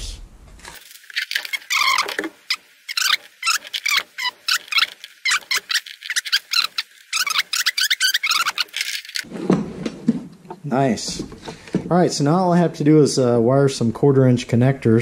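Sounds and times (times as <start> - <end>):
high-pitched squeaky chirps and clicks: 1.1 - 9.2.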